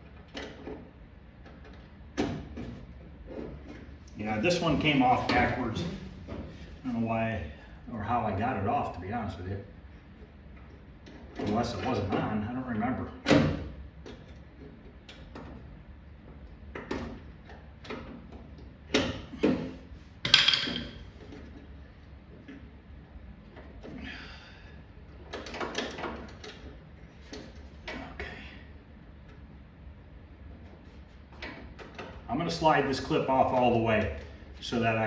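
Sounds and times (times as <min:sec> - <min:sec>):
metallic clicks and knocks in door: 0:20.2 - 0:21.4.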